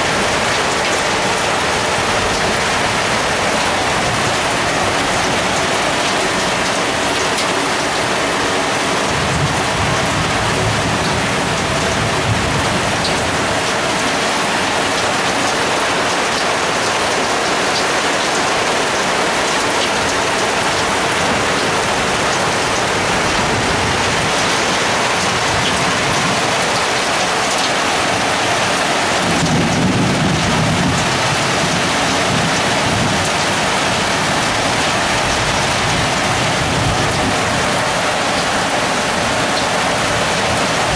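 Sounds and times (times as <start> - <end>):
heavy rain pouring: 0.0 - 40.9
thunder rolling: 29.2 - 34.6.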